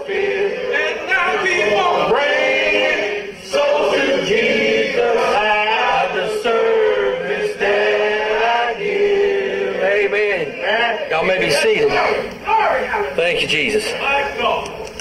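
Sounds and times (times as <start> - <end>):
congregation singing: 0.0 - 12.7.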